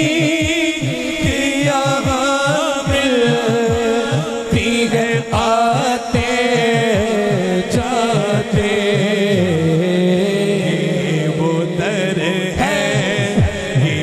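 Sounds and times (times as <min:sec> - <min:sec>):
low repeating beat: 0:00.0 - 0:14.0
man singing through microphone: 0:00.0 - 0:14.0.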